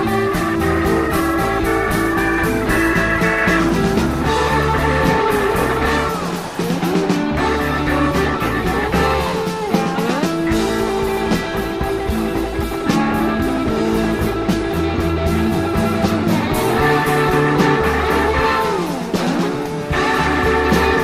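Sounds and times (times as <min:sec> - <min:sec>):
blues-rock music with guitar: 0:00.0 - 0:21.0.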